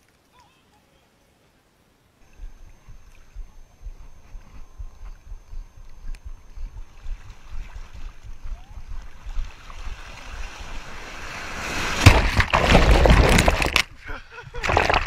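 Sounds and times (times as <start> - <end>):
wind rumbling on microphone: 2.2 - 12.1
sea water lapping: 6.5 - 13.7
wave breaking: 6.9 - 14.0.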